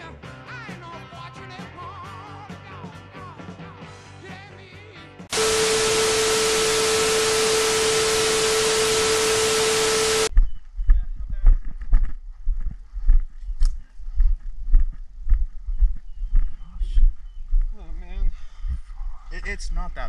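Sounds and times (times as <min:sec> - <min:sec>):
tv static hiss with steady tone: 0:05.3 - 0:10.3.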